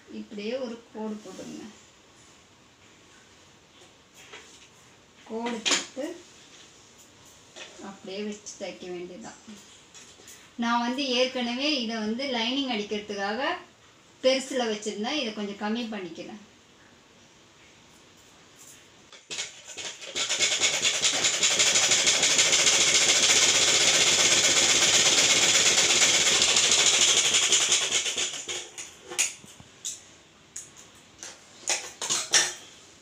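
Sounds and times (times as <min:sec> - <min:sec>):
sewing machine stitching: 0:19.3 - 0:28.8.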